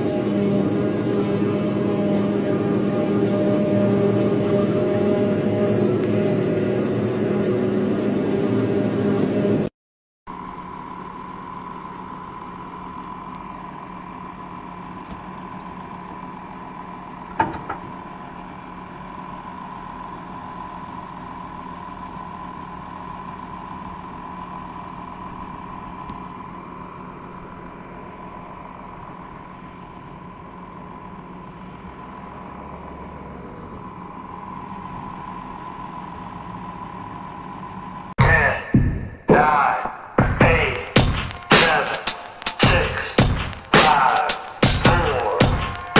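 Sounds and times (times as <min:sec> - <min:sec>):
tractor diesel engine idling: 0:10.3 - 0:38.6.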